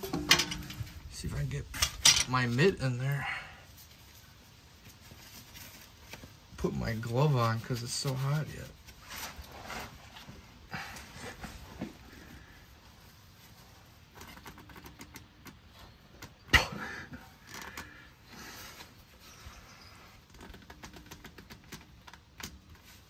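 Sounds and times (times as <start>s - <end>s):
gloved hand twisting oil filter: 13.1s - 16.5s, 19.8s - 23.0s.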